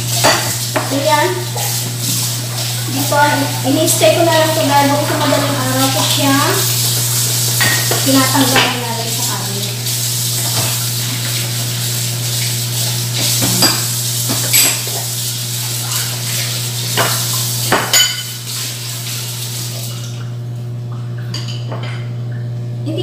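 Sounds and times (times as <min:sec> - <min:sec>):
tap water running: 0:00.0 - 0:23.0
crockery and cutlery clinking: 0:13.3 - 0:15.0, 0:17.8 - 0:18.4.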